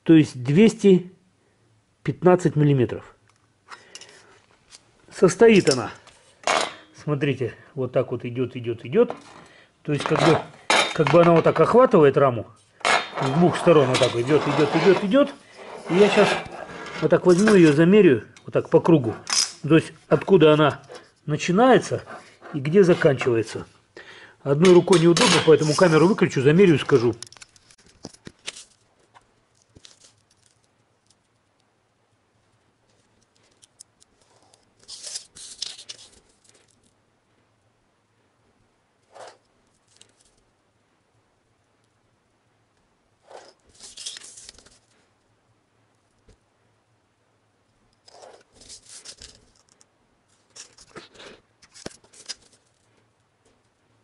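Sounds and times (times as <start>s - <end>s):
paper rustling and sliding: 13.2s - 17.9s, 34.2s - 36.8s, 43.3s - 45.0s, 48.0s - 49.7s, 50.3s - 52.9s
pen scratching along ruler: 48.1s - 48.5s.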